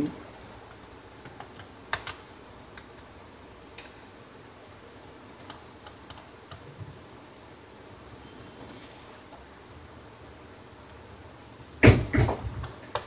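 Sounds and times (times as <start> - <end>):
laptop keyboard clicks: 0.6 - 3.0.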